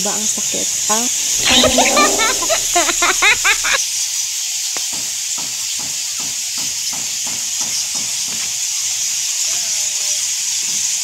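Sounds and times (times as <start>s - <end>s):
bats chittering: 1.2s - 3.8s.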